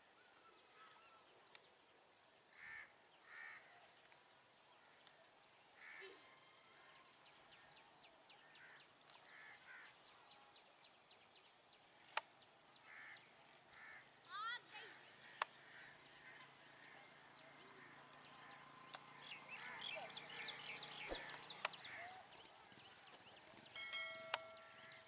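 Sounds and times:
crow cawing faintly: 2.5 - 3.8, 5.8 - 6.9, 8.4 - 10.0, 12.8 - 14.1, 15.1 - 18.7, 19.5 - 22.3.

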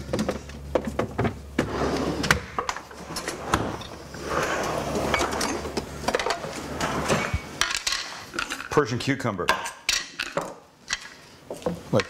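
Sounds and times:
kitchen drawer pulled open: 3.0 - 7.5
clicks and knocks of items: 7.1 - 8.8.

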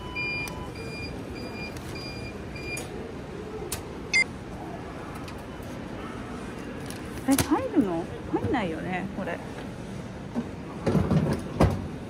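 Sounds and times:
luggage locker beeping: 0.0 - 2.9.

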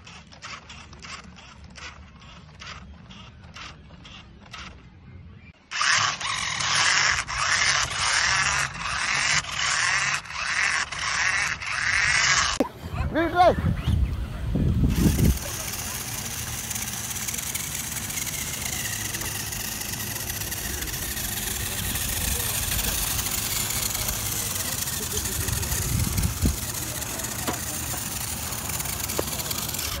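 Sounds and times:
small electric motor whine: 5.6 - 12.6, 14.8 - 30.0
wind rumbling on microphone: 12.7 - 15.5, 25.4 - 26.8.

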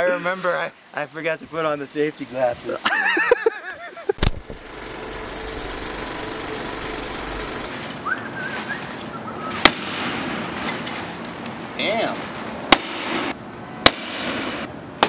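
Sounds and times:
steady mechanical running noise: 4.2 - 8.3
sharp knock: 9.6 - 10.4.

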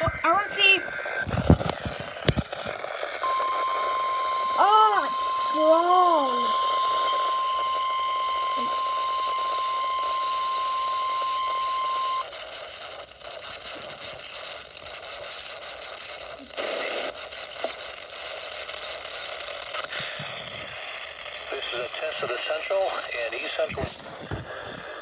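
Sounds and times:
radio alarm tone: 0.0 - 15.2
hissy radio static: 0.0 - 25.0.

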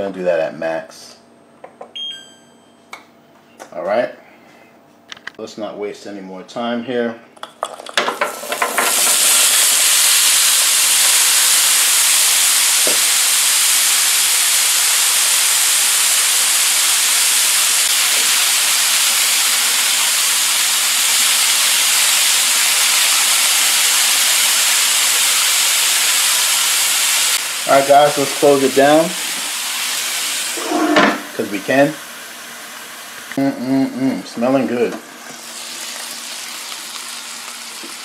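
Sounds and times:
potatoes and onions sizzling on griddle: 8.0 - 34.0, 35.2 - 38.0.

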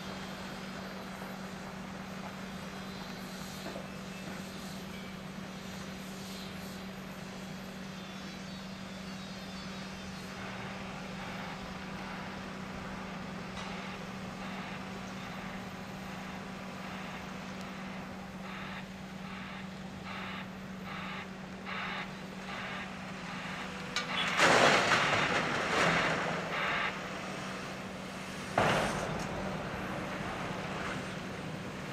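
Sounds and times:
heavy diesel engines droning: 0.0 - 31.9.

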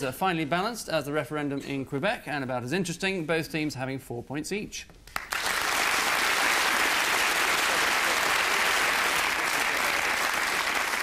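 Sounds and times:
studio audience applauding: 5.1 - 11.0.

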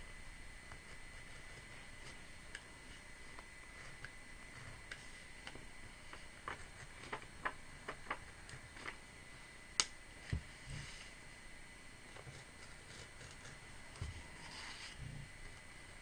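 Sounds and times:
craft knife cutting paper: 12.1 - 15.0.

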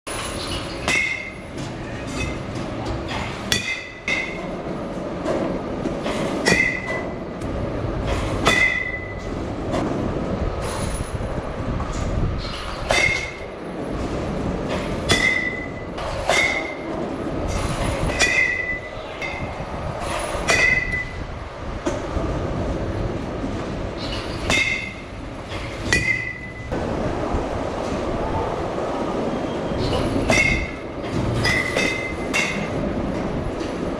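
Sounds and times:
metal bat pinging balls: 0.1 - 4.6, 6.0 - 7.2, 8.0 - 9.4, 12.4 - 13.5, 14.9 - 19.6, 20.2 - 21.2, 24.0 - 26.7, 29.8 - 32.8
steady background noise: 0.1 - 33.9.

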